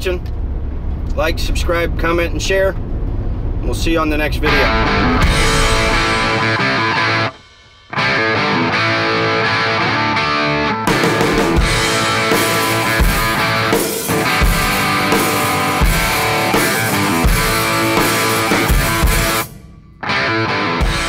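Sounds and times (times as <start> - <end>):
music with guitar and drums: 4.5 - 21.0.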